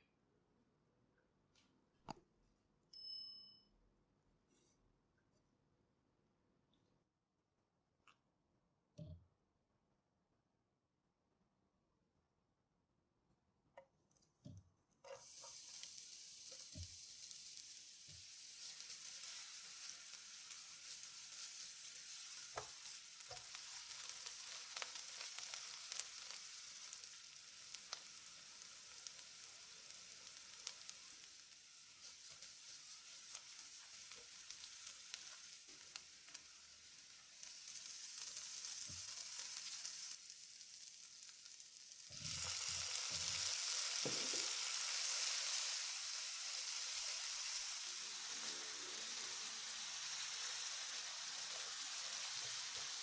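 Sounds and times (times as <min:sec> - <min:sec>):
onion sizzling in oil: 0:15.0 - 0:53.0.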